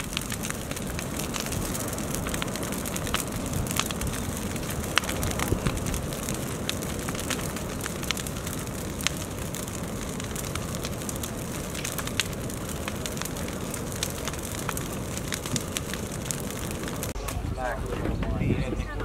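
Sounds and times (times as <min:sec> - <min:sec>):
bonfire flame rushing: 0:00.0 - 0:19.0
branches crackling and popping: 0:00.0 - 0:19.0.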